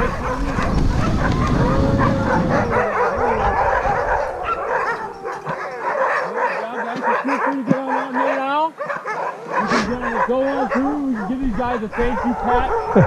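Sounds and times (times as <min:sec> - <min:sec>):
sled rumbling over snow: 0:00.0 - 0:05.6
dogs barking and yipping: 0:00.0 - 0:13.0
dogs howling: 0:00.0 - 0:13.0.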